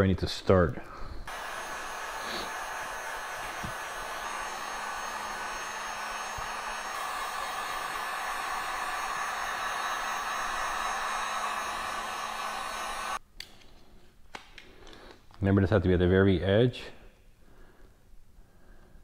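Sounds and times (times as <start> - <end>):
heat gun blowing: 0.9 - 13.2.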